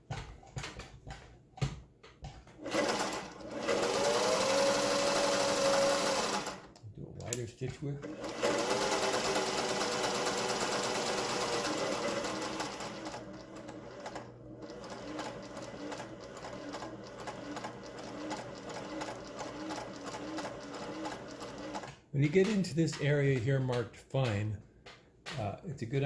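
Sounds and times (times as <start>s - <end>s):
sewing machine stitching: 2.6s - 7.4s, 8.0s - 22.8s.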